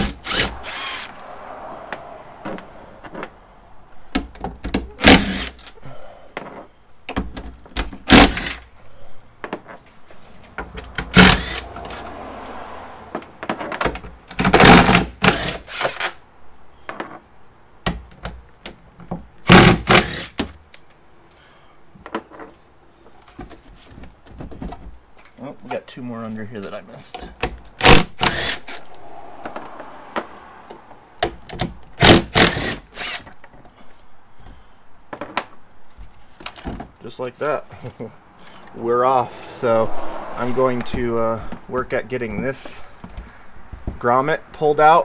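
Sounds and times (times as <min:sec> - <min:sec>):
impact driver bursts: 0:00.0 - 0:01.1, 0:04.9 - 0:05.6, 0:08.0 - 0:08.7, 0:11.1 - 0:12.0, 0:14.4 - 0:16.2, 0:19.4 - 0:20.5, 0:27.8 - 0:28.8, 0:32.0 - 0:33.3.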